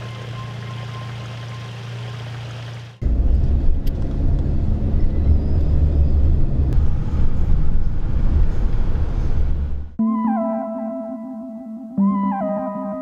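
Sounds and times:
loud low rumble: 3.0 - 10.0.

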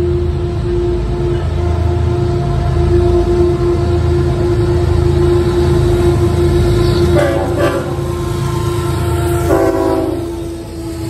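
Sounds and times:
diesel locomotive engine rumble: 0.0 - 11.0
train air horn blasts: 0.0 - 11.0.

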